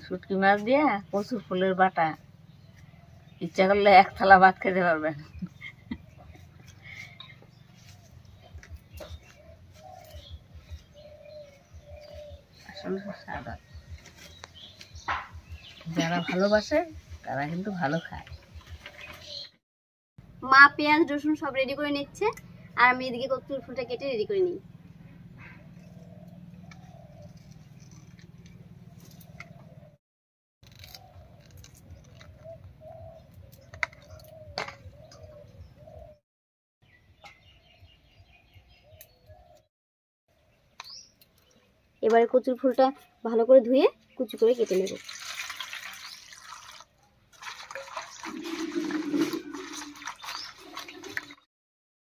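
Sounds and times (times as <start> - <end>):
blade slicing flower stalks: 30.6 - 32.1
water splashing and sloshing: 44.4 - 51.5
water poured into a steel bowl: 44.6 - 51.4.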